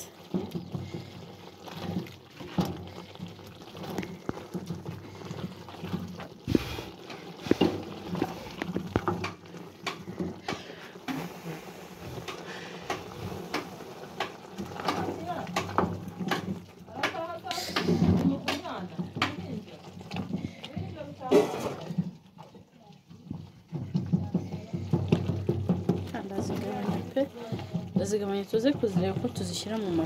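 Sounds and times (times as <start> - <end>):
stew bubbling in a pot: 0.0 - 30.0
wooden spoon knocking pot: 7.4 - 10.7, 12.3 - 30.0.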